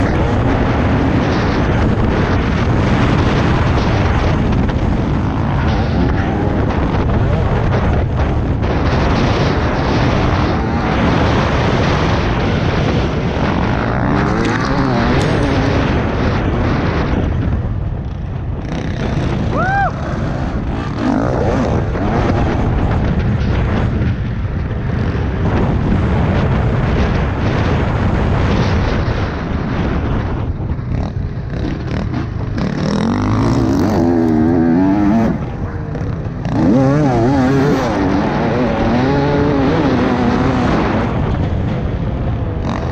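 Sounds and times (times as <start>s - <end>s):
dirt bike engine revving: 0.0s - 42.9s
wind buffeting microphone: 0.0s - 42.9s.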